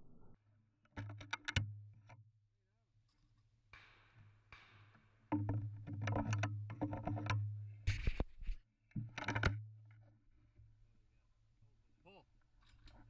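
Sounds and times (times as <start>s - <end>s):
shotgun handling clicks and rustling: 12.5s - 13.0s.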